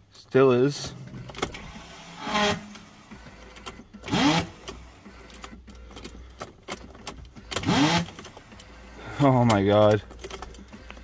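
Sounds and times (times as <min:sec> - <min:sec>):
rising starter whines: 0:01.0 - 0:08.8
starter motor whirring: 0:01.0 - 0:09.7.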